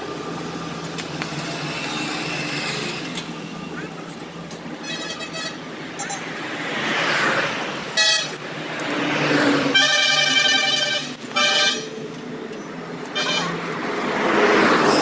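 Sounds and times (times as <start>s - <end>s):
road traffic noise: 0.0s - 15.0s
vehicle horns honking: 4.8s - 6.2s, 8.0s - 8.4s, 9.7s - 12.0s, 13.1s - 13.6s.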